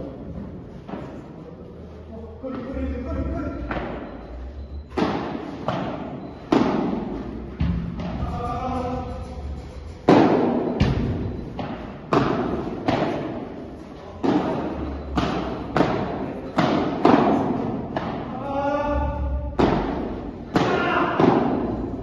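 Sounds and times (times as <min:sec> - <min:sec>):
padel ball hits echoing: 0:10.0 - 0:13.5, 0:14.2 - 0:18.4, 0:19.6 - 0:21.8.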